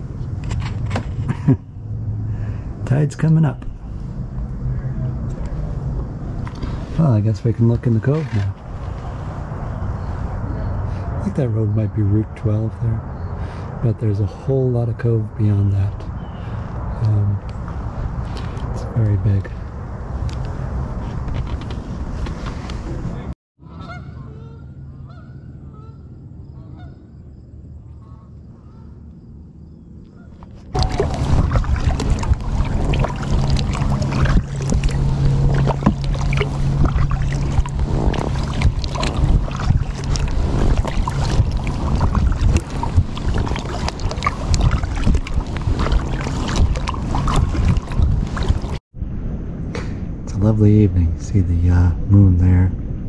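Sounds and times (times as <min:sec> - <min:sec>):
wind noise on microphone: 0:03.6 - 0:14.2, 0:15.4 - 0:23.3, 0:30.3 - 0:53.0
kayak paddle splashing: 0:08.1 - 0:10.4, 0:30.7 - 0:48.8
geese honking: 0:23.6 - 0:27.0.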